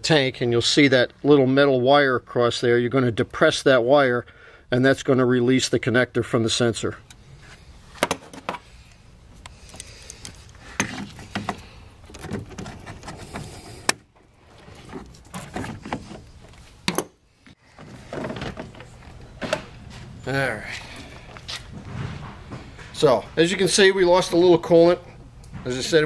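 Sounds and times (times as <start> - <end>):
hands rubbing plastic: 9.8 - 16.8.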